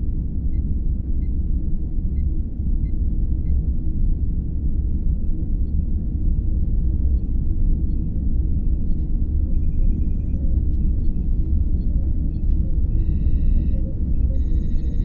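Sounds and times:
deep engine hum: 0:00.0 - 0:15.0
faint electronic beeps: 0:07.2 - 0:15.0.

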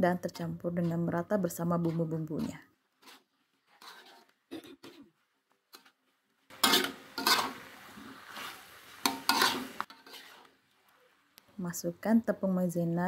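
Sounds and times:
spatula scraping a wok: 0:01.7 - 0:04.5, 0:05.7 - 0:10.8.

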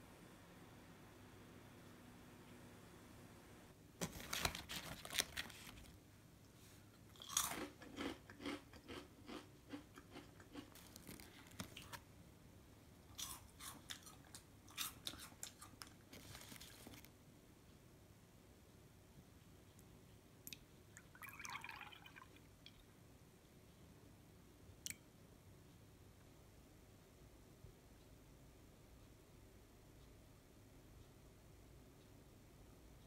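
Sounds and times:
foil snack bags crackling: 0:04.0 - 0:06.0, 0:10.6 - 0:12.0, 0:16.1 - 0:17.1
snacks crunching: 0:07.1 - 0:12.0, 0:13.1 - 0:17.1.

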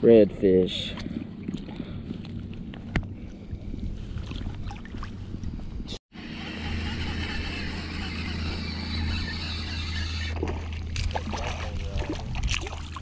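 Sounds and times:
low engine hum: 0:00.0 - 0:13.0
water sloshing: 0:00.8 - 0:03.0, 0:04.0 - 0:05.4, 0:09.9 - 0:13.0.

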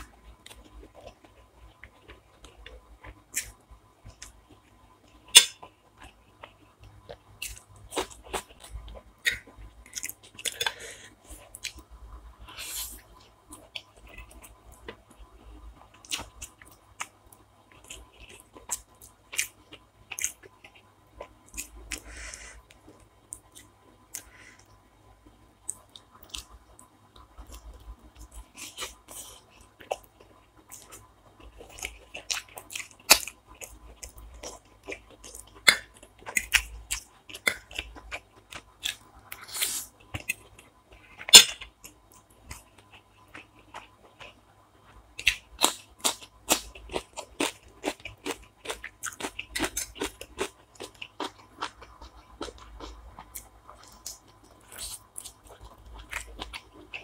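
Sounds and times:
person chewing crunchy food: 0:00.0 - 0:57.0.

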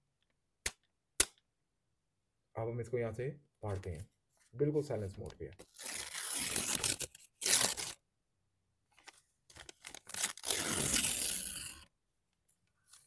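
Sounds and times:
paper tearing: 0:05.6 - 0:08.0, 0:09.6 - 0:11.9.

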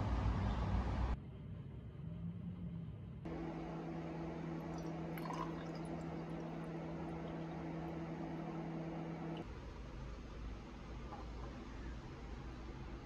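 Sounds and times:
kitchen appliance humming: 0:03.3 - 0:09.5
water trickling: 0:04.5 - 0:09.4.

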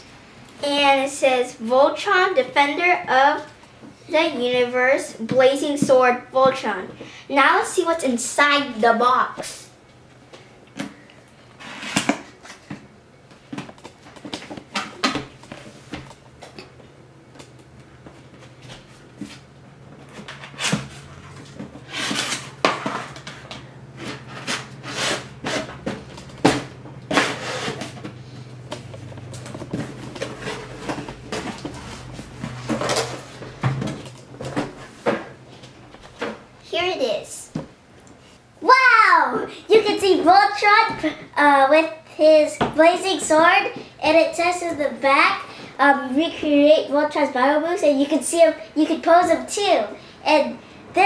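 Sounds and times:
card scraping against card: 0:24.0 - 0:25.7.

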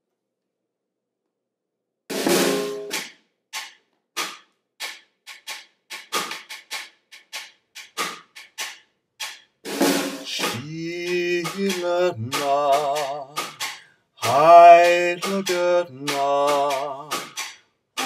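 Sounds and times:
snare drum hits: 0:02.1 - 0:17.6
man singing: 0:10.2 - 0:17.4.

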